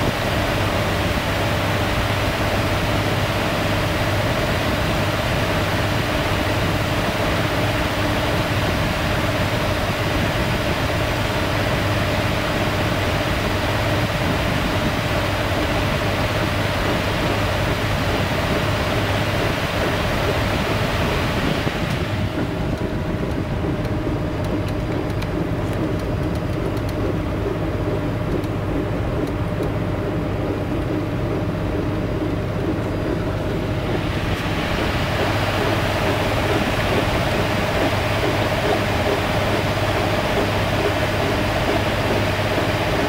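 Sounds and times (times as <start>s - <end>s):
washing machine motor hum: 0.0s - 43.0s.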